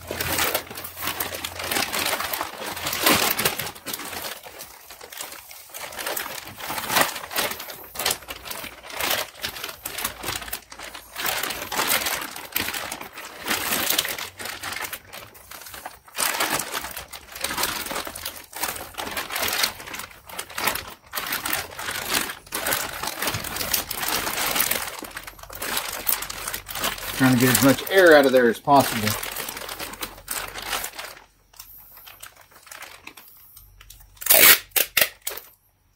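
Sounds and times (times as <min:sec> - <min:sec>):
plastic bag and paper crinkling: 0:00.0 - 0:35.9.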